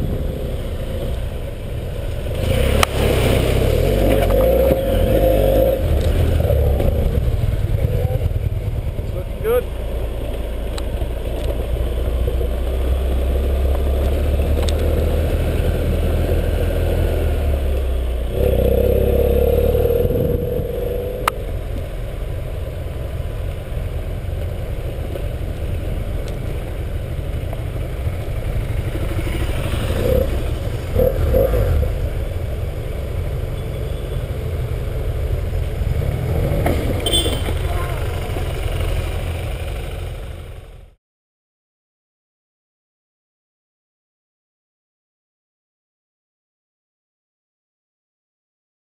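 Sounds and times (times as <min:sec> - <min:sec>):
motorcycle engine running: 0:03.5 - 0:16.4, 0:17.4 - 0:41.0.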